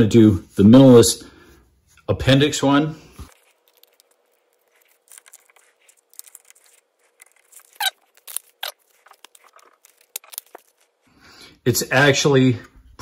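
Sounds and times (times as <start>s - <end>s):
rustling and scraping: 3.1s - 11.1s.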